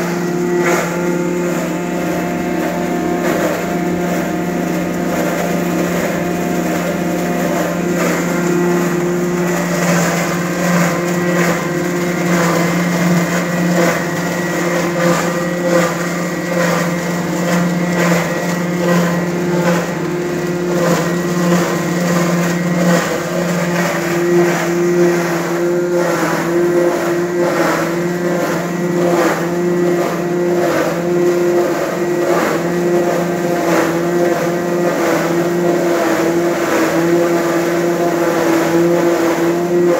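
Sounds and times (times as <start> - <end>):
grinding machine running: 0.0 - 39.9.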